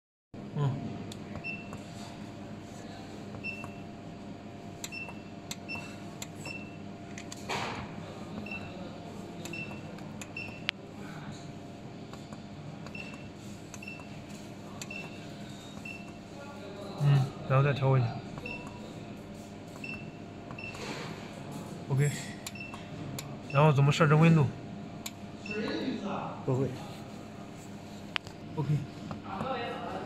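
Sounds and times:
steady low hum: 0.4s - 30.0s.

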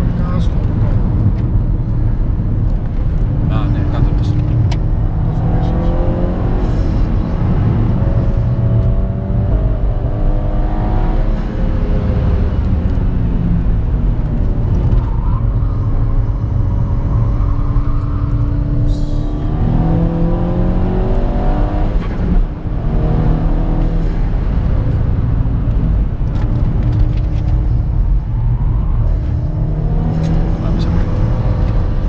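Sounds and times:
car engine accelerating hard: 0.0s - 32.0s.

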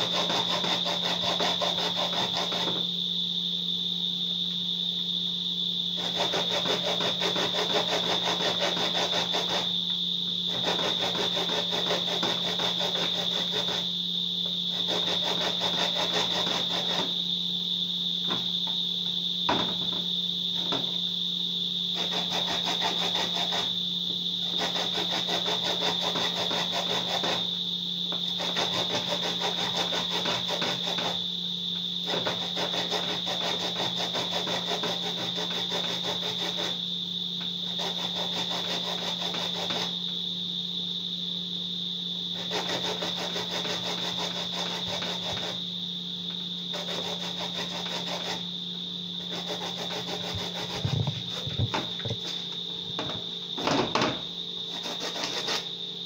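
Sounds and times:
corn rasping on metal grater: 0.0s - 2.8s, 6.0s - 9.7s, 10.5s - 13.9s, 14.7s - 17.1s, 22.0s - 23.7s, 24.4s - 27.5s, 28.3s - 31.2s, 32.0s - 36.8s, 37.6s - 40.0s, 42.3s - 45.6s, 46.7s - 48.4s, 49.2s - 51.8s, 54.7s - 55.7s
steady high-pitched whine: 0.0s - 56.0s.

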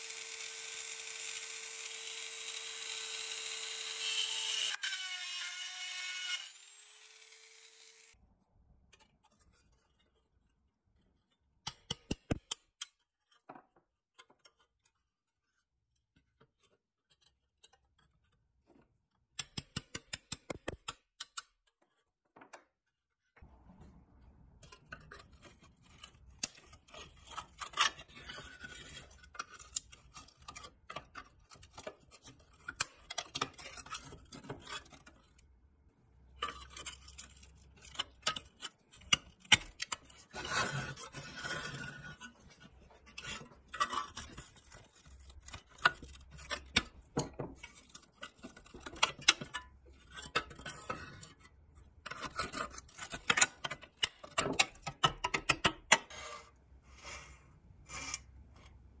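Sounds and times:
screwdriver scraping steel: 57.9s - 58.8s.

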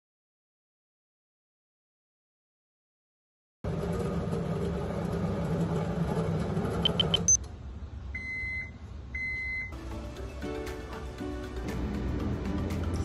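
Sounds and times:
microwave oven humming: 3.7s - 10.3s
high microwave beeps: 6.8s - 7.4s, 8.2s - 9.8s
background music with a beat: 9.8s - 13.0s.

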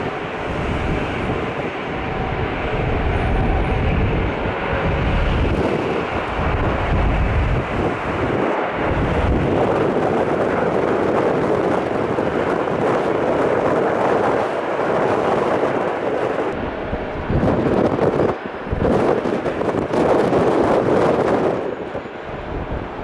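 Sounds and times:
jet engine roar: 0.0s - 23.0s
wind buffeting microphone: 0.0s - 23.0s.

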